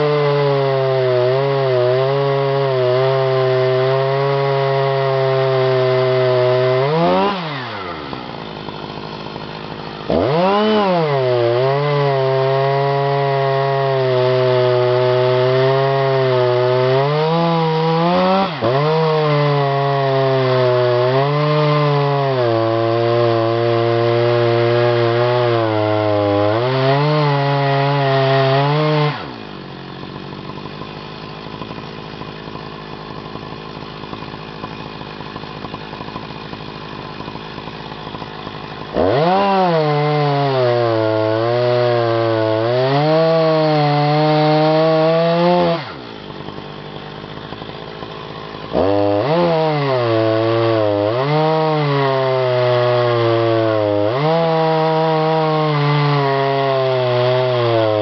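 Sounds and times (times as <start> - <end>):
chainsaw cutting log: 0.0 - 58.0.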